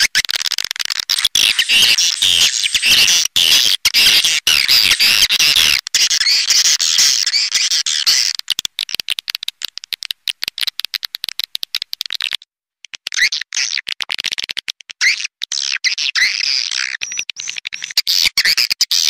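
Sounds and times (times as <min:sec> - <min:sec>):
dry clicking chatter: 0:00.0 - 0:13.1
swiftlet calls: 0:01.0 - 0:12.1
twittering chirps: 0:01.1 - 0:08.4.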